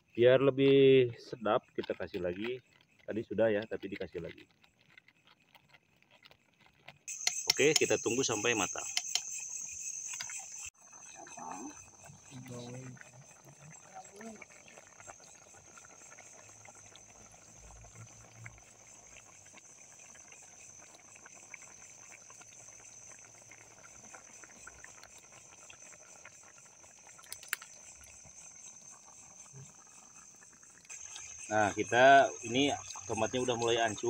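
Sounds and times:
crickets chirping: 0.0 - 34.0
faint crackles: 0.0 - 34.0.

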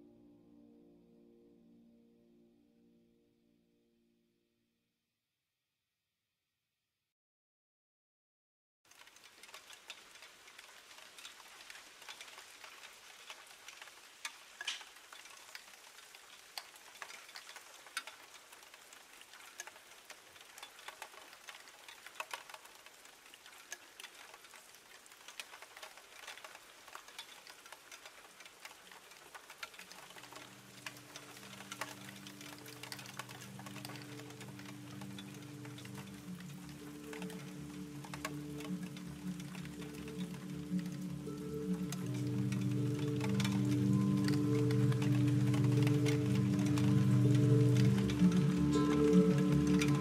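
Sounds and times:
low sustained chord tones: 0.0 - 4.4, 30.1 - 50.0
crackling hiss with small clicks: 8.9 - 50.0.

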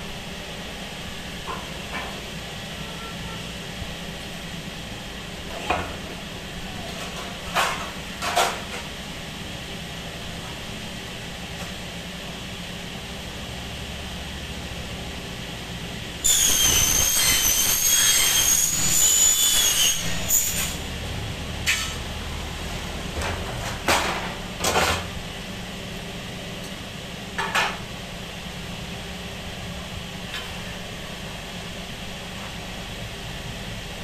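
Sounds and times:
saw cutting aluminium: 16.2 - 21.0.

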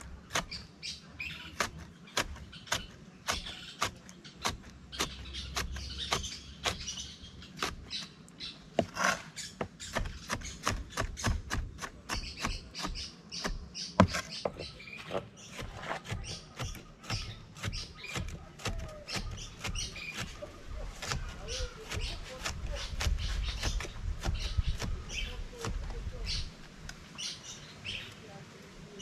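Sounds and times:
knife chopping on wooden board: 1.5 - 7.0, 8.7 - 26.0.

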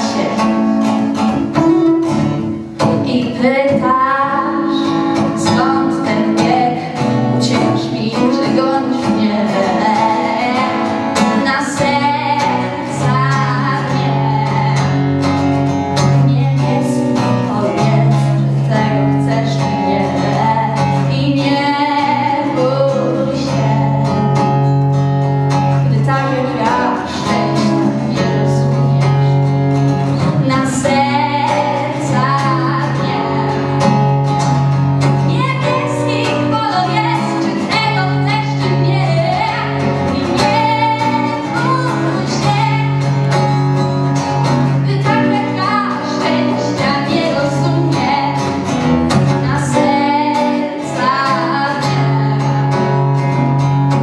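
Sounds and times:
woman singing into microphone: 0.0 - 53.6
instrumental accompaniment: 0.0 - 54.0.

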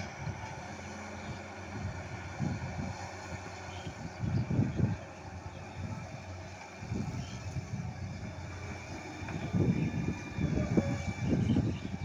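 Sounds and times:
excavator diesel engine under load: 0.0 - 12.0.

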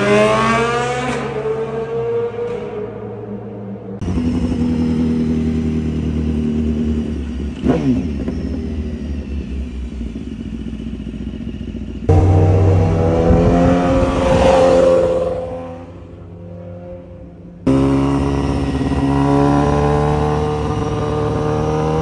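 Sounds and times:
motorcycle engine running: 4.0 - 22.0.

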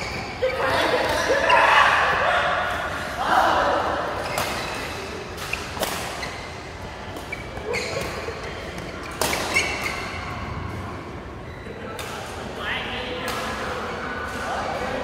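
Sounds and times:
shoes squeaking on court floor: 0.0 - 1.7, 4.2 - 10.5
racket hitting shuttlecock: 4.3 - 6.4, 8.8 - 10.0.

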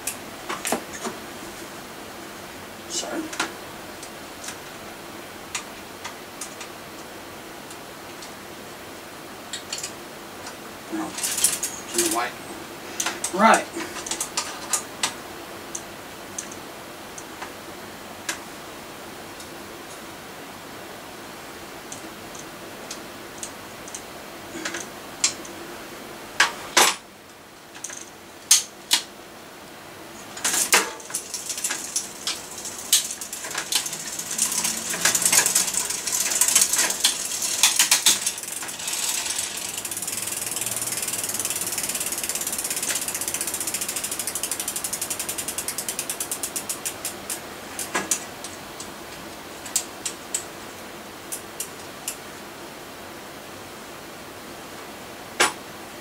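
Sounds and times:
bike chain clicking and clattering: 11.0 - 12.3, 13.0 - 15.2, 23.4 - 25.5, 27.7 - 29.1, 30.3 - 48.9
freewheel ratchet ticking: 30.9 - 48.2.

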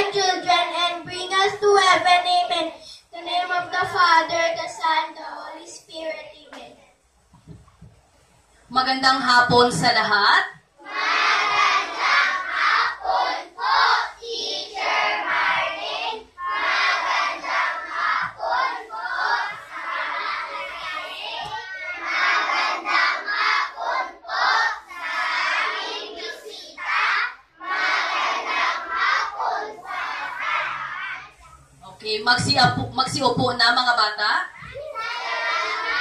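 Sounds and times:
children chanting in unison: 10.8 - 31.6, 34.6 - 36.0.

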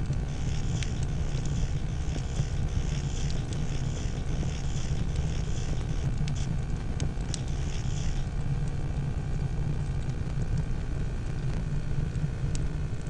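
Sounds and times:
burning timber crackling and popping: 0.0 - 13.0
low rumble of flame: 0.0 - 13.0.

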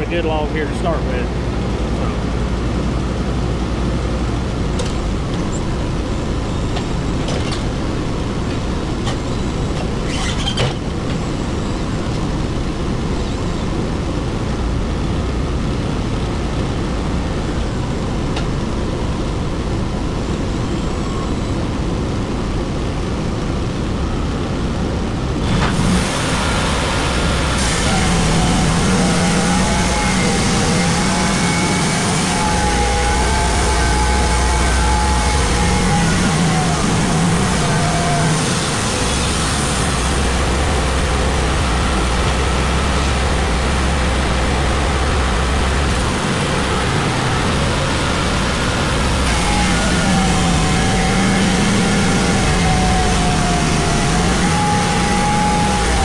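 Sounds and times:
steady whining note: 25.3 - 56.0
sawmill engine running: 25.4 - 56.0.

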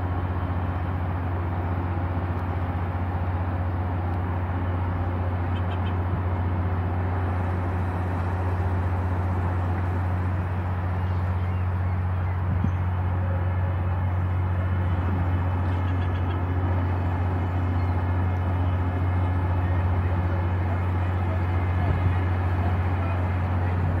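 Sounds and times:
boat engines droning: 0.0 - 24.0
rushing water noise: 0.0 - 24.0.

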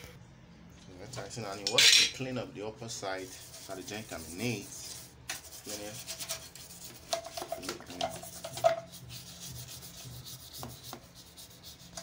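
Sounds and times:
hand scrubbing engine casing: 3.1 - 12.0.

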